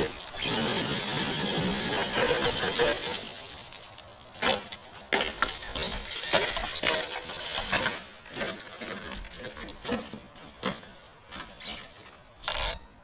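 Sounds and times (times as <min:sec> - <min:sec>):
electric motor and tyres spinning: 0:00.0 - 0:09.9.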